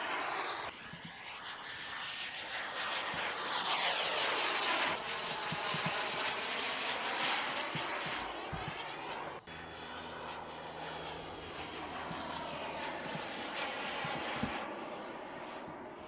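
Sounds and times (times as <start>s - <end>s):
model jet turbine whine: 0.0s - 16.0s.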